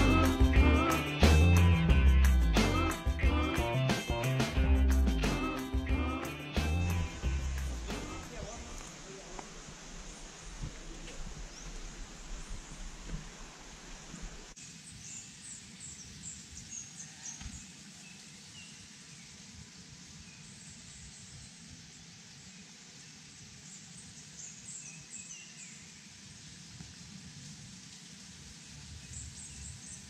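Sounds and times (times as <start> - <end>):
steady outdoor hiss: 0.0 - 30.0.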